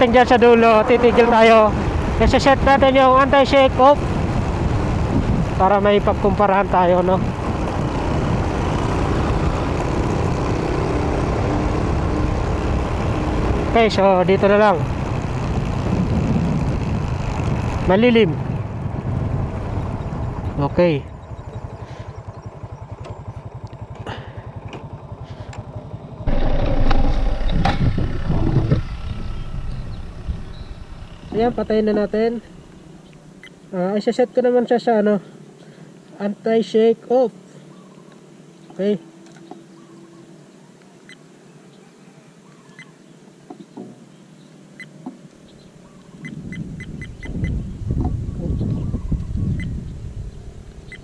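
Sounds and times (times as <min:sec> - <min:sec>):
rumbling wind: 0:00.0 - 0:33.7, 0:45.2 - 0:51.0
motorcycle engine idling: 0:18.6 - 0:33.6.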